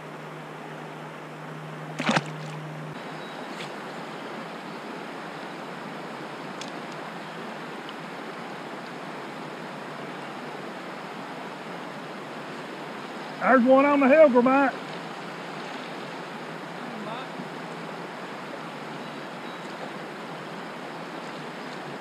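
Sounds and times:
river water rushing: 0.0s - 22.0s.

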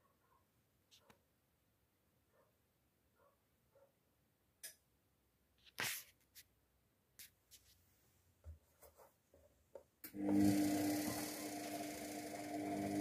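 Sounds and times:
washing machine motor humming: 10.1s - 13.0s.

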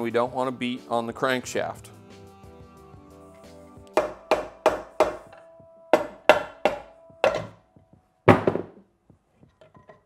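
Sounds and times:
mallet striking metal case: 6.0s - 7.6s.

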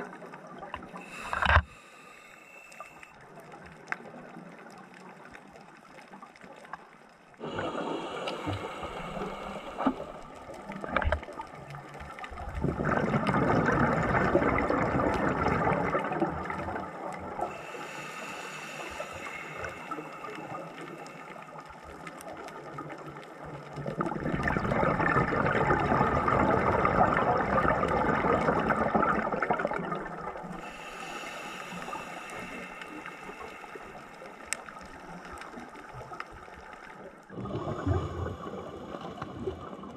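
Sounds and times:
regulator hissing inhale: 0.9s - 3.2s, 7.4s - 10.6s, 17.4s - 21.8s, 30.5s - 35.8s
exhaled bubbles burbling: 7.4s - 17.5s, 22.5s - 30.6s, 37.2s - 39.9s.

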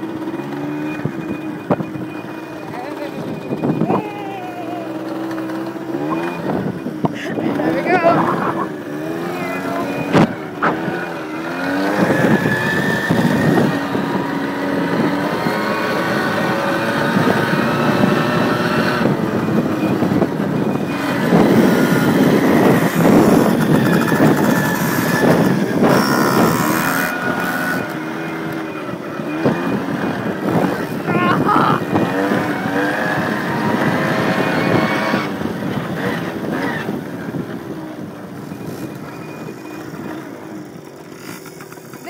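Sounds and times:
two-stroke engine revving: 0.0s - 42.0s.

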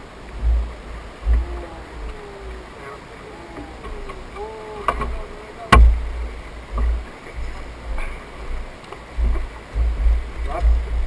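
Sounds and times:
low rumbles: 0.0s - 11.0s
water lapping against boat hull: 0.0s - 11.0s
sharp knock: 5.7s - 6.0s.

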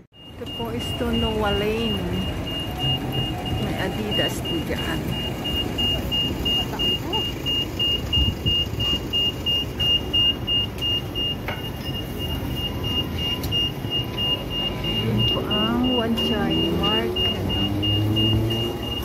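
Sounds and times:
passing pedestrians: 0.0s - 19.0s
traffic rumble: 0.0s - 19.0s
high electronic beep: 0.2s - 19.0s.

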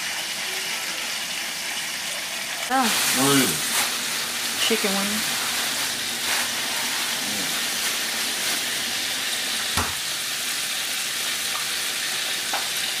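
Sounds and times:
chicken sizzling in hot oil: 0.0s - 13.0s
knock: 9.8s - 10.0s.

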